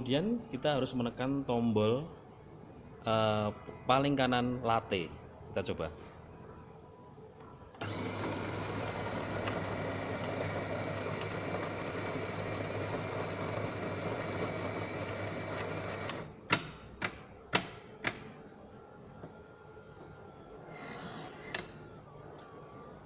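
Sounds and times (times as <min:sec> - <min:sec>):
coffee machine whirring: 0:07.8 - 0:16.4.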